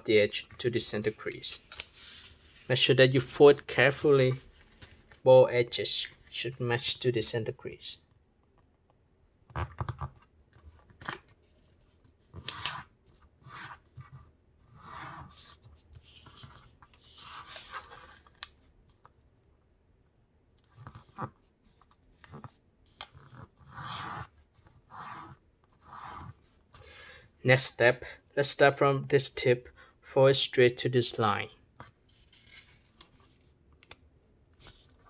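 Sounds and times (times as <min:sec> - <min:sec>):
fingers sliding on paper: 0:12.3 - 0:15.6, 0:23.1 - 0:26.4.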